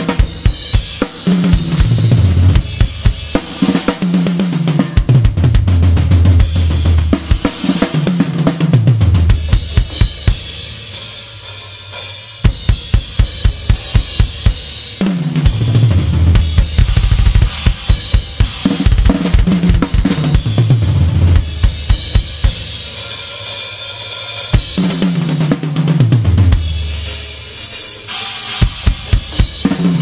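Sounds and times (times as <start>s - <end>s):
drum kit groove: 0.0s - 30.0s
cymbals crashing: 10.0s - 15.0s, 21.6s - 25.1s, 26.7s - 30.0s
kick drum strokes: 15.4s - 22.6s.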